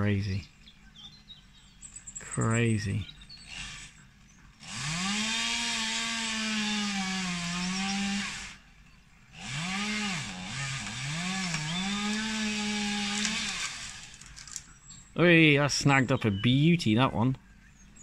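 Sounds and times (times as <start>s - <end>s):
chainsaw at full throttle: 3.2s - 14.3s.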